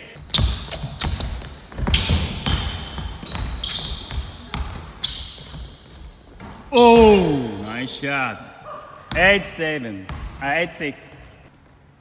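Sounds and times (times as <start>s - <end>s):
sneaker squeaks: 0.0s - 12.0s
basketball dribbling on wood: 0.2s - 7.4s.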